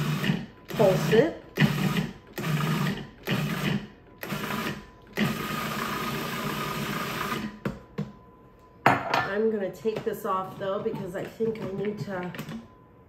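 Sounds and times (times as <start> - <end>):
food processor motor pulsing: 0.0 - 7.6.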